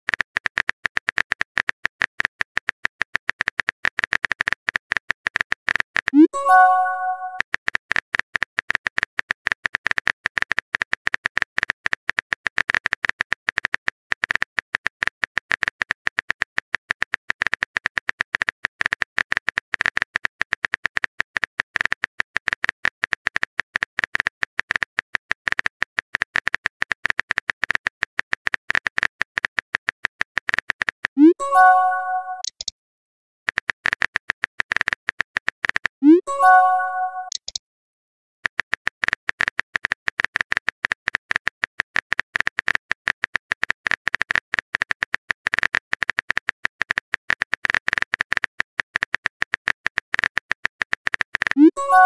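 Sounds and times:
keyboard typing clicks: 0:00.1 - 0:16.4, 0:25.5 - 0:32.7, 0:33.5 - 0:37.6, 0:38.6 - 0:52.0.

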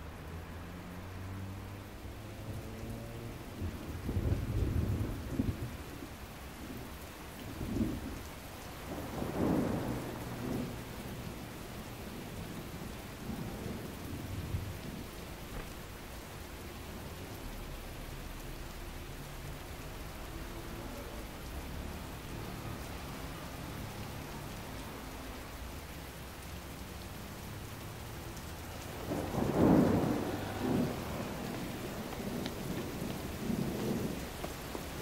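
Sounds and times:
steady rain: 0:00.0 - 0:35.0
thunder rolling: 0:08.8 - 0:11.4, 0:28.8 - 0:35.0.

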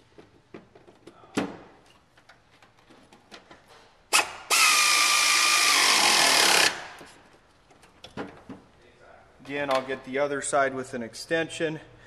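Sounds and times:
power tool whirring: 0:04.1 - 0:07.0.

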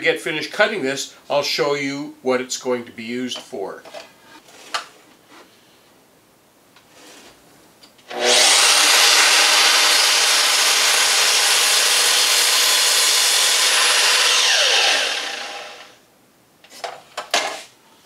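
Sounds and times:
mitre saw cutting wood: 0:08.1 - 0:16.0
saw blade spinning down: 0:08.1 - 0:16.0.

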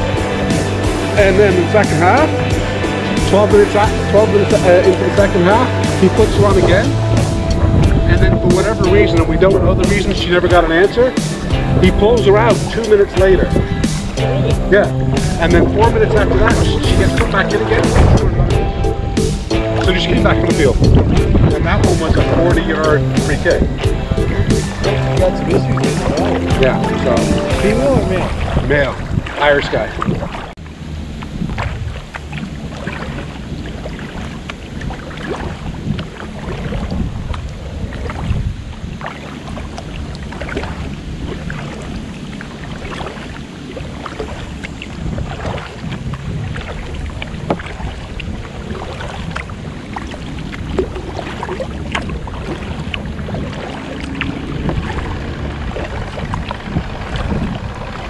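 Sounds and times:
paddle splashes and drips: 0:00.0 - 0:58.0
wind buffeting microphone: 0:00.0 - 0:58.0.

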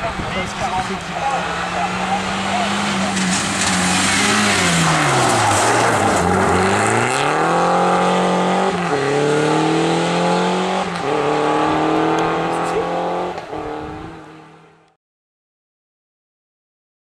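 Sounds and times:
rally car engine revving: 0:00.6 - 0:14.8
gravel hissing under sliding tyres: 0:03.0 - 0:06.6.

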